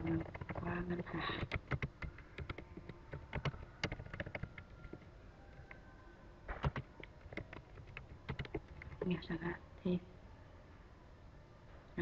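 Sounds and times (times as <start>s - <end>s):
computer keyboard typing: 0.0s - 5.9s, 6.5s - 9.3s.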